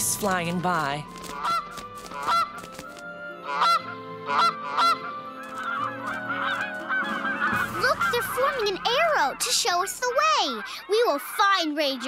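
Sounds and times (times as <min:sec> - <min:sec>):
flock of geese honking: 0:01.2 - 0:12.0
cartoon goose honks: 0:03.4 - 0:12.0.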